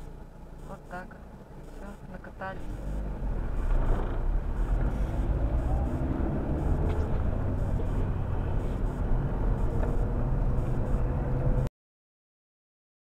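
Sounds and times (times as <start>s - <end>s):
car engine and road rumble: 0.0s - 11.7s.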